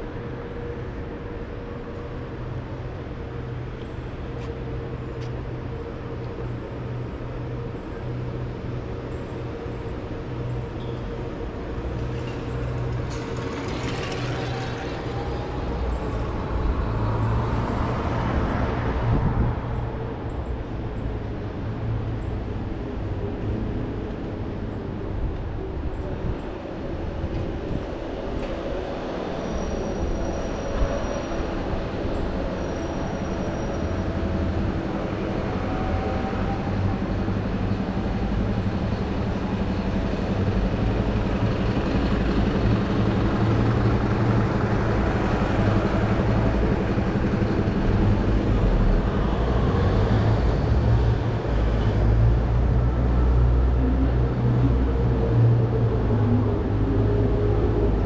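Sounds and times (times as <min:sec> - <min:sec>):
traffic engine rumble: 0:31.4 - 0:58.0.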